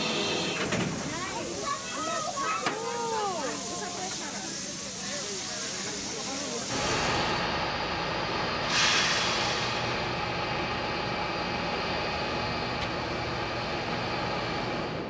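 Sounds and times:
steam locomotive hissing: 0.0s - 7.6s, 8.4s - 12.4s.

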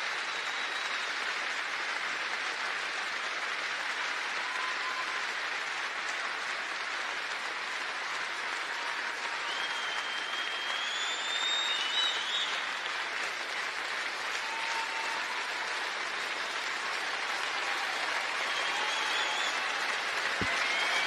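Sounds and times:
crowd applauding: 0.0s - 21.0s
thin whistle: 9.5s - 12.6s.

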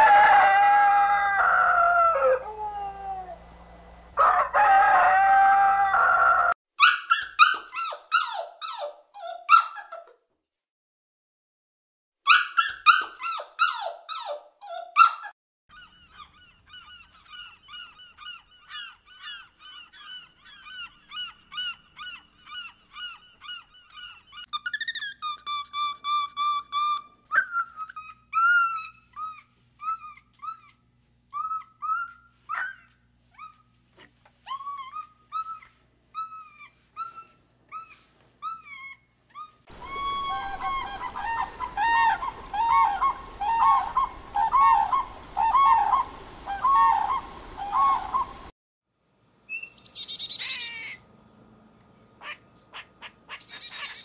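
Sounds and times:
rooster crowing: 0.0s - 6.6s, 39.7s - 46.0s
birds calling: 15.7s - 29.4s, 39.7s - 48.5s, 49.5s - 51.0s, 52.2s - 54.0s.

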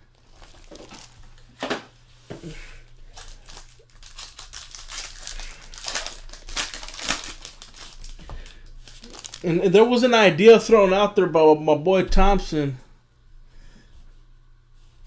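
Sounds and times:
foil wrapper crinkling: 0.1s - 1.4s, 2.8s - 10.0s
foil tearing: 3.1s - 9.6s.

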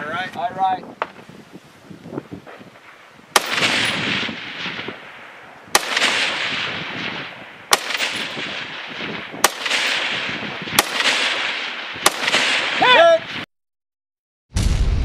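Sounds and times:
rifle shots with rolling echo: 2.5s - 13.4s.

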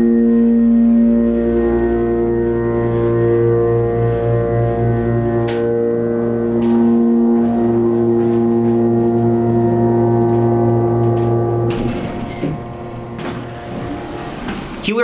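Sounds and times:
elevator pump motor humming: 0.0s - 15.0s
elevator car knocks: 11.7s - 14.9s.

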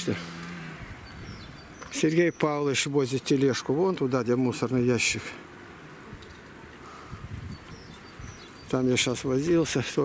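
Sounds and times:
faint high bird chirps: 1.0s - 2.8s, 7.4s - 9.1s.

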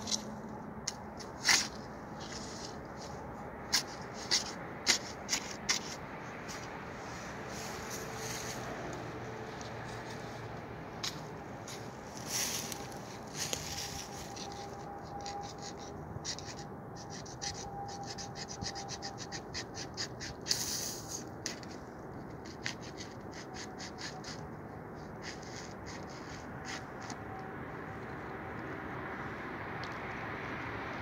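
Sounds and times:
scratchy clicks and rubbing: 14.0s - 20.6s.

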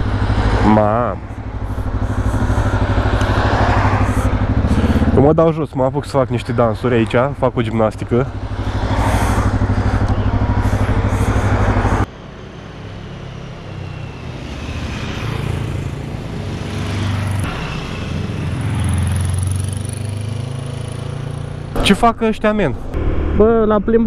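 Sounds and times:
motorcycle engine running: 0.0s - 12.1s, 14.9s - 21.8s
motorcycles passing by: 0.0s - 21.8s.

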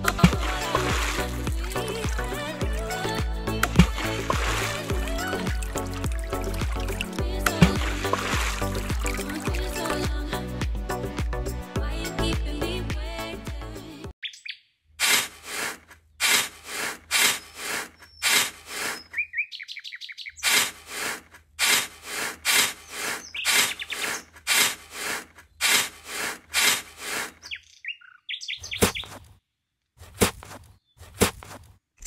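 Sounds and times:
bird chirps: 14.2s - 14.8s, 17.2s - 20.5s, 22.8s - 24.4s, 27.4s - 29.3s.

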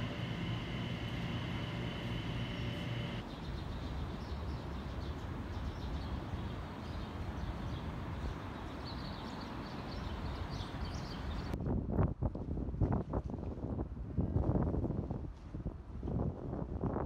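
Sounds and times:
distant city traffic rumble: 0.0s - 3.6s
small birds chirping: 0.0s - 11.6s.

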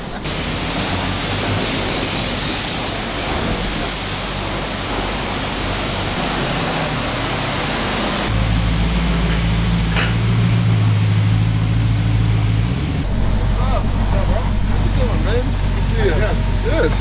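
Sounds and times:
high-pressure water spray hissing: 0.0s - 12.9s
steady low hum: 11.3s - 17.0s.

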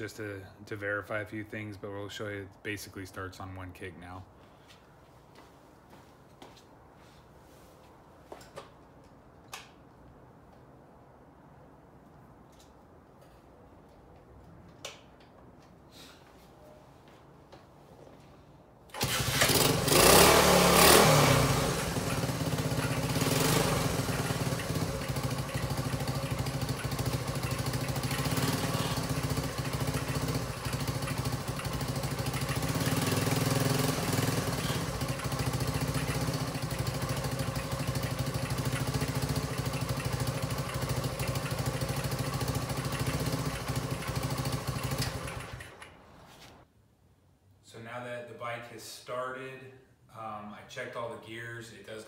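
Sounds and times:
motorcycle engine kick-started and revving: 18.9s - 46.2s.

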